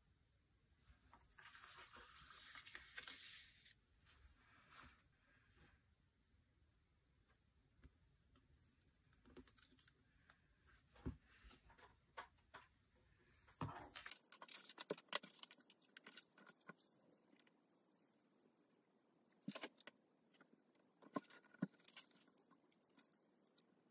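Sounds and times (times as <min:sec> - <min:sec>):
paper sheets rustling: 0:01.4 - 0:03.7, 0:13.9 - 0:17.1.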